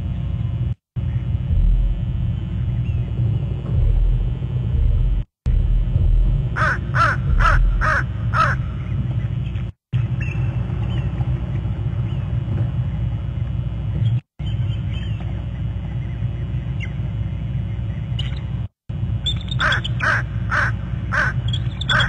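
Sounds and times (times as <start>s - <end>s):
steady low rumble: 0.0s - 18.1s
crow cawing: 6.6s - 8.8s, 19.6s - 22.0s.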